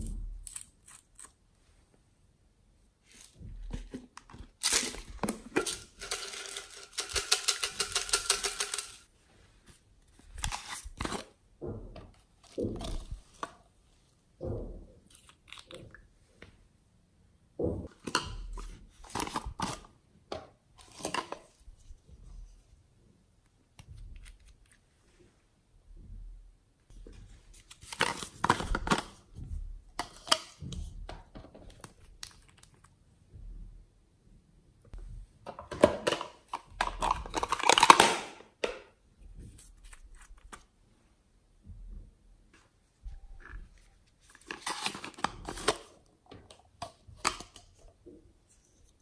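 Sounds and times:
plastic bottles rustling: 3.5 - 9.1.

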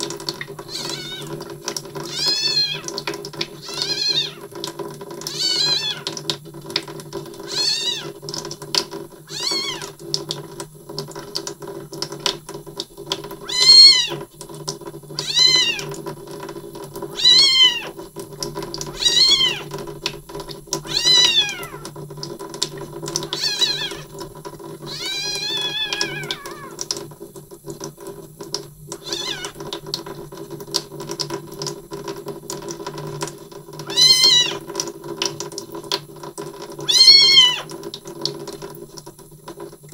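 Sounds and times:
kitten mewing loudly: 0.7 - 1.4, 2.1 - 2.9, 3.6 - 4.4, 5.3 - 6.1, 7.5 - 8.1, 9.3 - 9.9, 13.4 - 14.2, 15.2 - 15.9, 17.2 - 18.0, 19.0 - 19.7, 20.9 - 21.9, 23.2 - 24.1, 24.9 - 26.8, 29.0 - 29.6, 33.9 - 34.6, 36.8 - 37.7.

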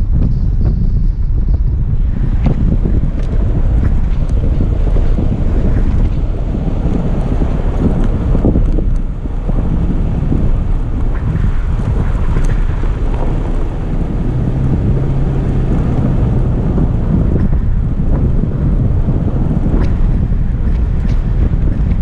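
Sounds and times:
tyres and engine rumbling: 0.0 - 22.0
wind buffeting microphone: 0.0 - 22.0.

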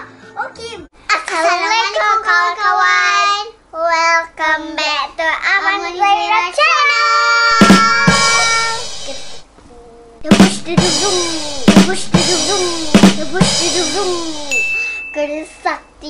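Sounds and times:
drum hit with crash cymbal: 7.6 - 9.5, 10.2 - 14.8.

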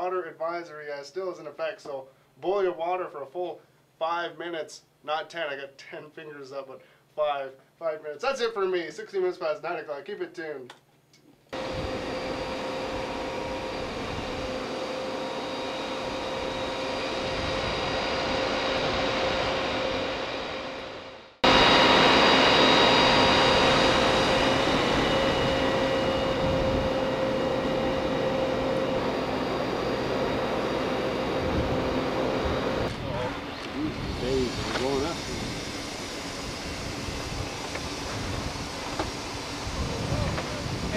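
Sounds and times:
constant whine: 11.5 - 40.9.

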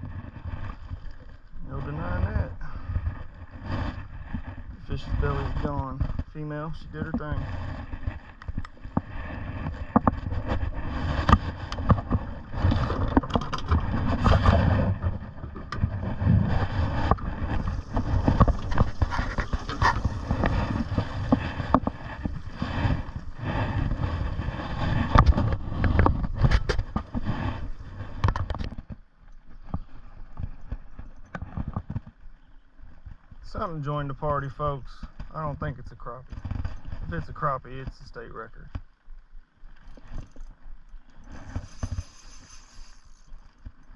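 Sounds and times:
knocks and clatter on boat: 0.0 - 32.2, 35.1 - 38.0
low rumble: 0.7 - 28.2.

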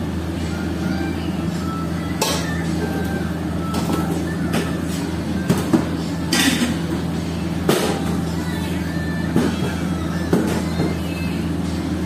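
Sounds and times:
kitchen machinery hum: 0.0 - 12.0.

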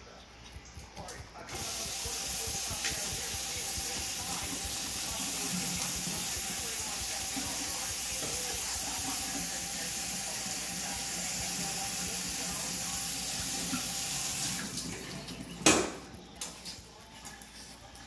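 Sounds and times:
faucet stream into steel sink: 1.5 - 16.0.

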